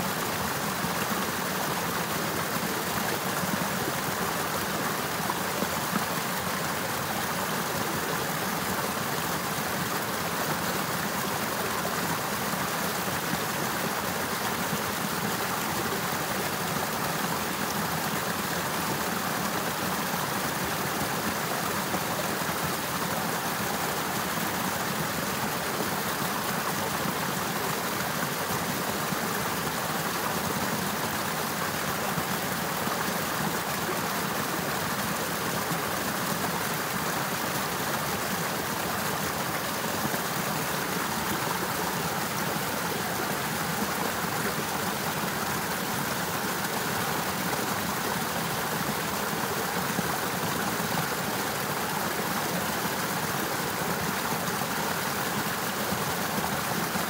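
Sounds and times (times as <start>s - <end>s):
river water rushing: 0.0s - 57.0s.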